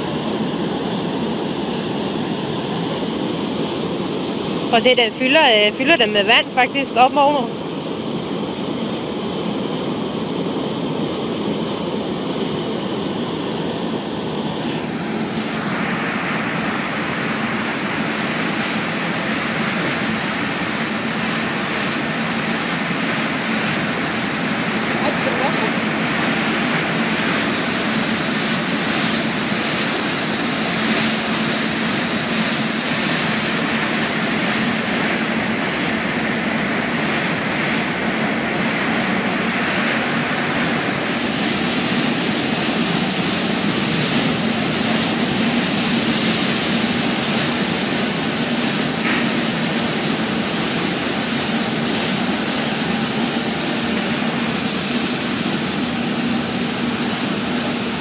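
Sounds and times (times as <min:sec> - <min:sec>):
ferry engine drone: 0:00.0 - 0:58.0
rushing churning water: 0:00.0 - 0:58.0.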